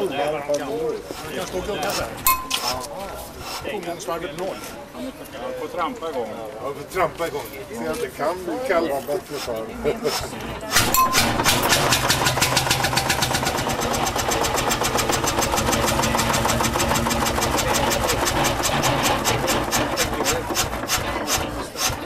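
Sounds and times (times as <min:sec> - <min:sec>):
engine running with rapid beat: 0:10.8 - 0:22.0.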